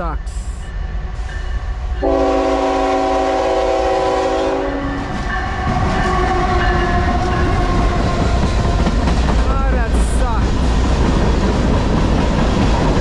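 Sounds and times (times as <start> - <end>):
locomotive rumbling past: 0.0 - 13.0
locomotive air horn: 2.0 - 5.0.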